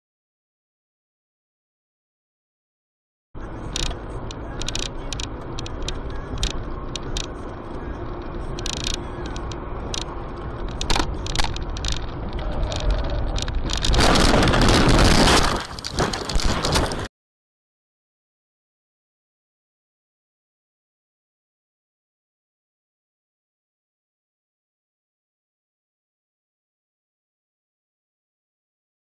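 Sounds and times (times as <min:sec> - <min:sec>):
car engine and road rumble: 0:03.4 - 0:17.1
sharp clicks and rattles: 0:03.6 - 0:17.1
car collision crash: 0:13.9 - 0:17.1.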